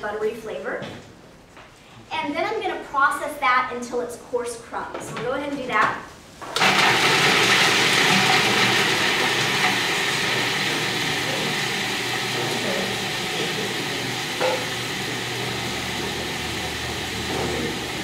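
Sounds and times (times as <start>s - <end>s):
food processor chopping: 6.6s - 18.0s.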